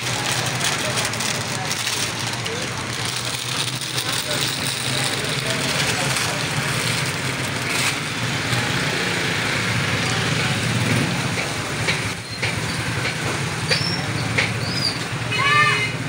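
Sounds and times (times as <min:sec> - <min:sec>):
faint voices: 0:00.0 - 0:16.0
traffic noise: 0:00.0 - 0:16.0.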